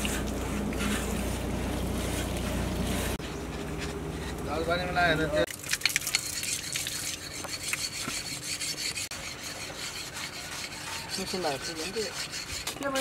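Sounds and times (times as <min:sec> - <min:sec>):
sharpening stone rasping on blade: 0:06.1 - 0:13.0.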